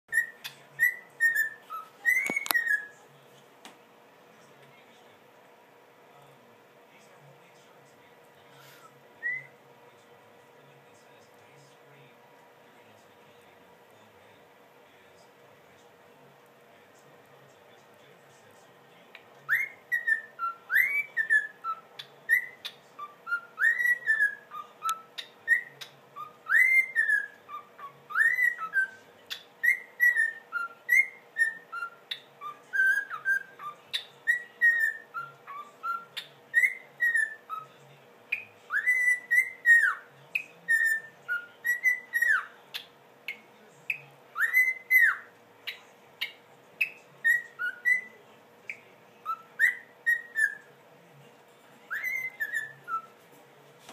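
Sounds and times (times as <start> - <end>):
cockatiel whistling: 0.1 - 3.0, 9.2 - 9.6, 19.4 - 37.7, 38.3 - 42.9, 43.9 - 50.7, 51.9 - 53.2.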